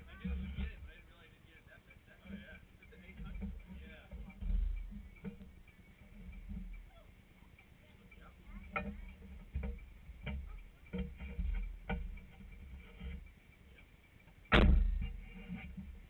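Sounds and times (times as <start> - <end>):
knocks on vehicle body: 14.5 - 15.3
loud thump: 14.5 - 15.4.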